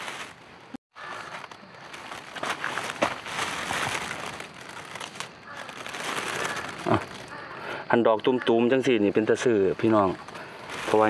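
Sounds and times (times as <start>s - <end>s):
dry leaves rustling and crackling: 0.0s - 7.4s, 9.8s - 11.0s
soil scraping and crumbling: 0.0s - 7.4s, 9.8s - 11.0s.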